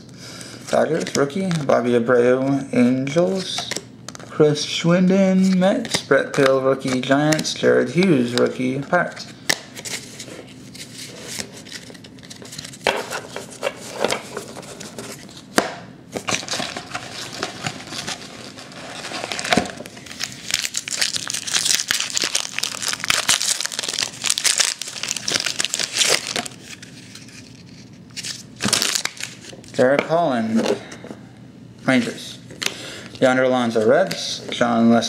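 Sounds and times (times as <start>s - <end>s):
wrapper crinkling and tearing: 16.2s - 29.8s.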